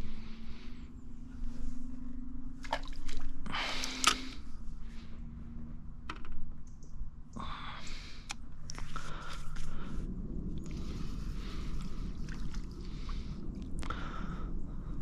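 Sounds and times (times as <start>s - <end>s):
faint low hum: 0.0s - 15.0s
fishing tackle clicks and rustles: 2.6s - 4.5s, 8.3s - 9.7s.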